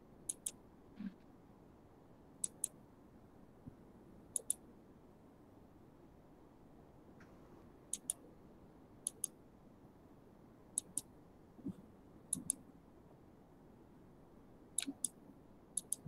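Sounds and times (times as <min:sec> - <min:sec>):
faint room noise: 0:00.0 - 0:16.0
sharp clicks in pairs: 0:00.3 - 0:00.6, 0:02.4 - 0:02.8, 0:04.4 - 0:04.6, 0:08.0 - 0:08.2, 0:09.1 - 0:09.4, 0:10.8 - 0:11.1, 0:12.3 - 0:12.6, 0:14.8 - 0:15.2, 0:15.8 - 0:16.0.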